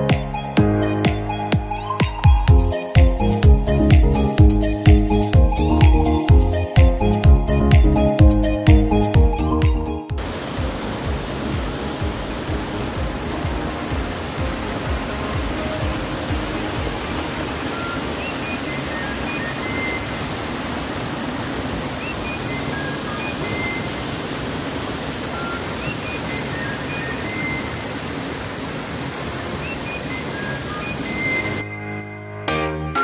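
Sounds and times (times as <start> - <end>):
stream rushing over rocks: 10.2 - 31.6.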